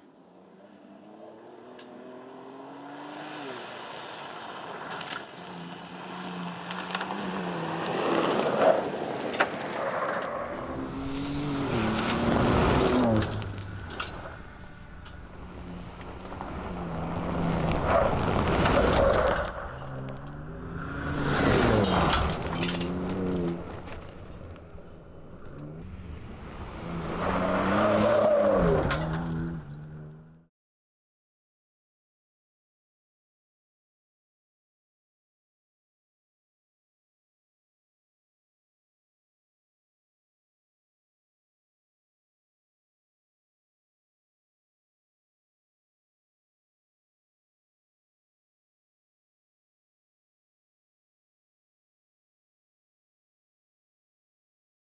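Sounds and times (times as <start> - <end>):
tyres scrabbling on gravel: 6.3 - 24.9
pickup engine revving: 10.6 - 24.2.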